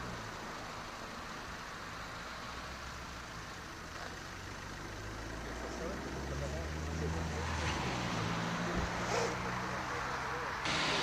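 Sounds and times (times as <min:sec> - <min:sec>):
distant city traffic rumble: 0:00.0 - 0:11.0
even hiss: 0:10.6 - 0:11.0.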